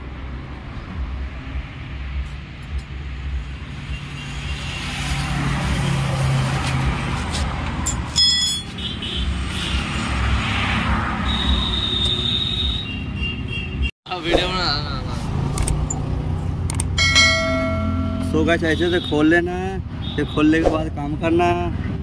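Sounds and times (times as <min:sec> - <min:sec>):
traffic rumble: 0:00.0 - 0:22.0
steady high tone: 0:16.9 - 0:18.6.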